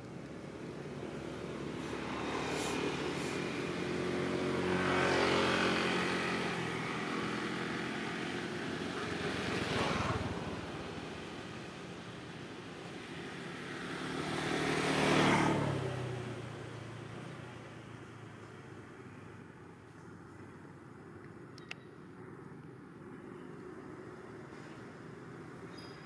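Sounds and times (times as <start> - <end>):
motor vehicle passing: 0.4 - 12.1, 13.0 - 16.8.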